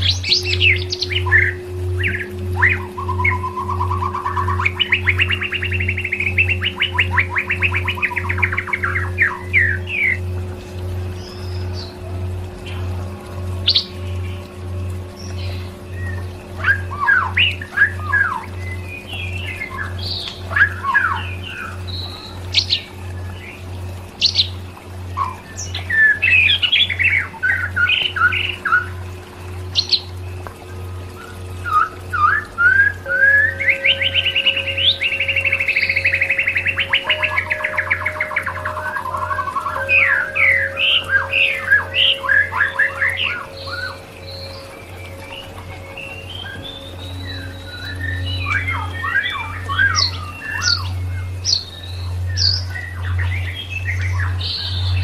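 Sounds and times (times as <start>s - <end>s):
songbird chirps and whistles: 0.0s - 12.0s, 12.6s - 55.0s
low throbbing beat: 0.0s - 21.8s
steady low hum: 0.0s - 55.0s.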